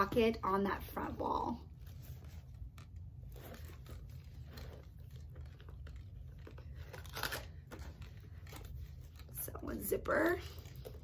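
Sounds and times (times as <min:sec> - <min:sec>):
low steady hum: 0:00.0 - 0:11.0
bag rustling and scraping: 0:01.7 - 0:09.4.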